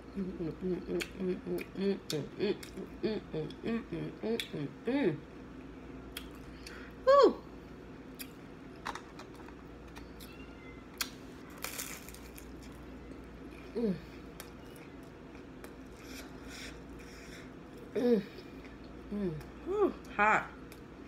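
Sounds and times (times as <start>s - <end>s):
person humming: 0.0s - 5.2s, 13.7s - 14.2s, 18.0s - 18.5s, 19.1s - 20.0s
chewing clicks and mouth sounds: 0.9s - 2.9s, 6.1s - 6.8s, 8.1s - 8.4s
crisp bite: 11.0s - 12.8s.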